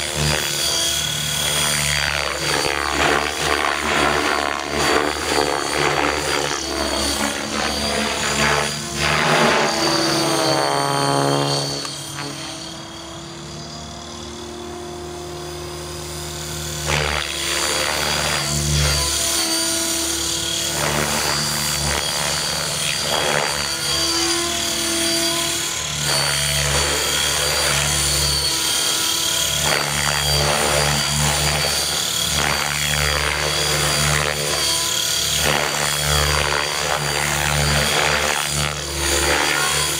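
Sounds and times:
rc helicopter rotor and motor whine: 0.0s - 39.9s.

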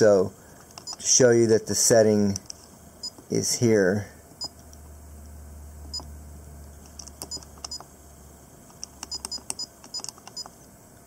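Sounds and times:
camera electronic beeps: 7.2s - 7.8s, 9.0s - 10.5s.

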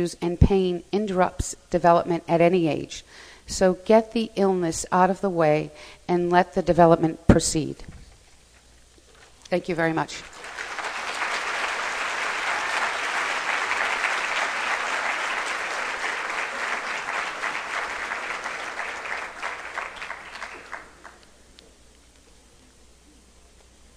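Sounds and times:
audience applauding: 10.2s - 21.2s.

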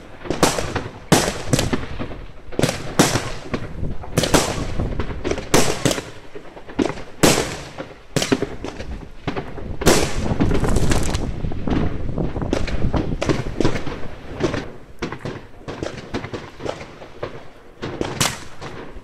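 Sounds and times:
fireworks bangs with echo: 0.0s - 19.0s.

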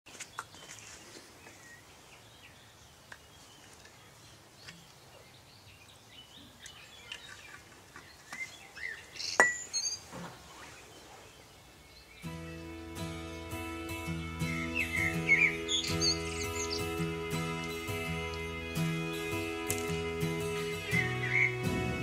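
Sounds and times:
birds chirping: 0.1s - 22.0s
glass clink: 9.4s - 9.8s.

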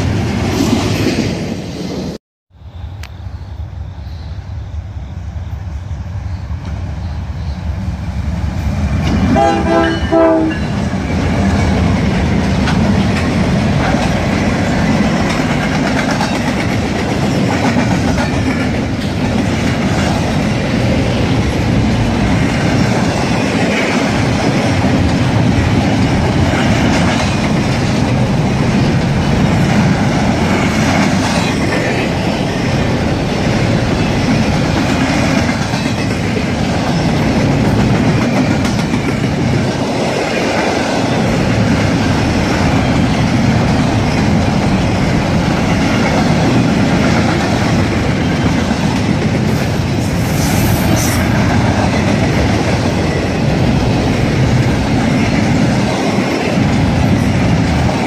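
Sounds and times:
train wheels clattering on rails: 6.5s - 58.0s
train horn: 9.2s - 10.7s.

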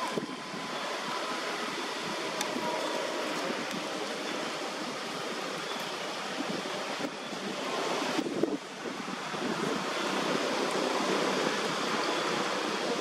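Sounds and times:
rushing wind: 0.0s - 13.0s.

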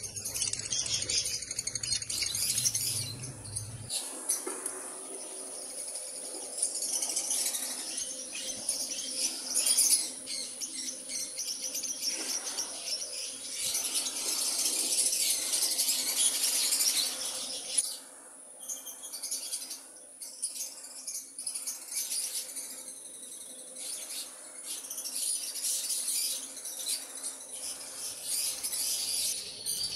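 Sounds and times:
lovebirds chattering: 0.0s - 17.9s.

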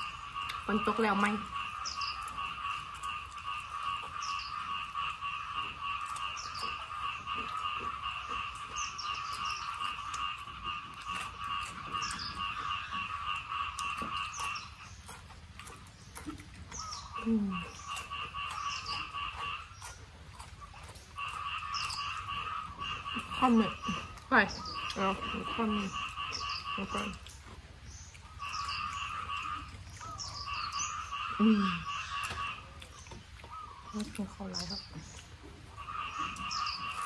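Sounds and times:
pulsing insect or frog call: 0.0s - 14.9s.

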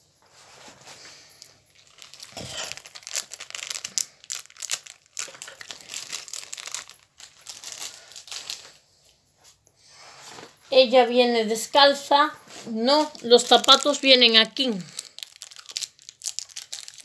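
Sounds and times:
packaging crinkling and tearing: 1.4s - 8.8s, 13.1s - 17.0s.

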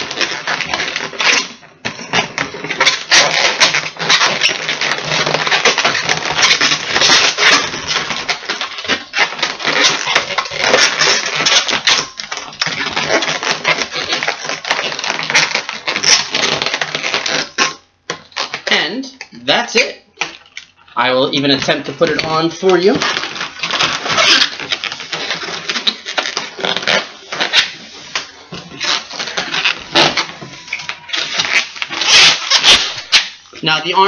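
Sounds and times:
balloons squeaking and creaking: 0.0s - 34.0s.

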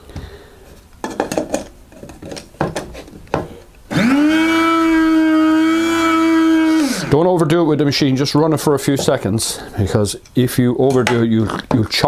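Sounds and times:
coffee grinder motor whine: 3.9s - 7.2s.

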